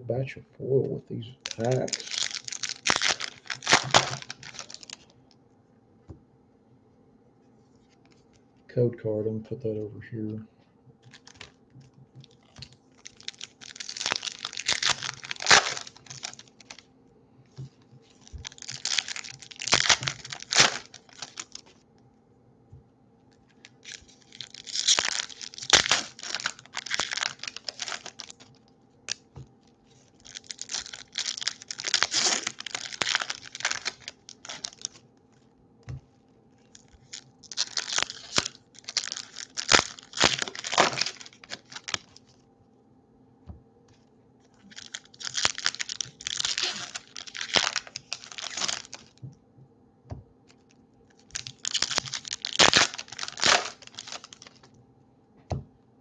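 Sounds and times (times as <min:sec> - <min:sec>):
foil wrappers tearing and crinkling: 0:01.5 - 0:05.1, 0:11.0 - 0:11.6, 0:12.2 - 0:16.9, 0:18.0 - 0:21.8, 0:23.5 - 0:29.2, 0:29.9 - 0:35.0, 0:36.6 - 0:42.4, 0:44.6 - 0:49.2, 0:51.2 - 0:54.7.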